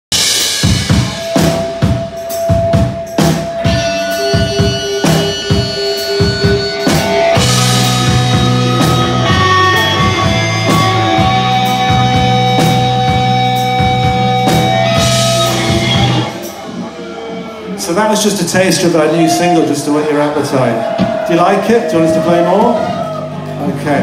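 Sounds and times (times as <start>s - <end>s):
drum kit: 0.1s - 24.0s
rock band playing: 0.1s - 24.0s
electric guitars: 0.2s - 17.8s
electric bass: 2.8s - 16.9s.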